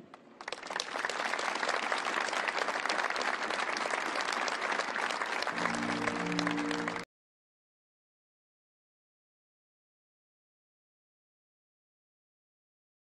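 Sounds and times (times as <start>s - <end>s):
audience applauding: 0.4s - 7.1s.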